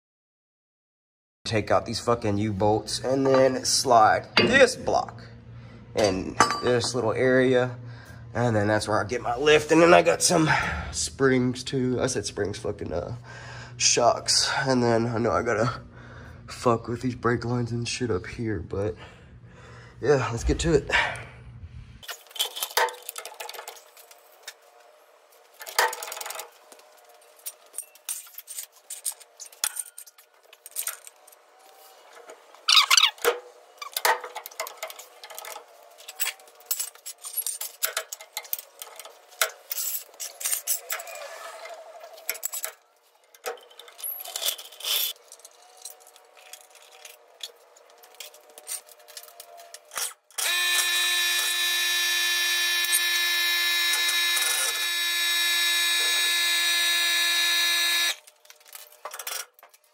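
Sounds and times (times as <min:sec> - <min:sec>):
metal tools clinking: 0:22.0 - 0:24.6, 0:25.6 - 0:50.5, 0:58.2 - 0:59.9.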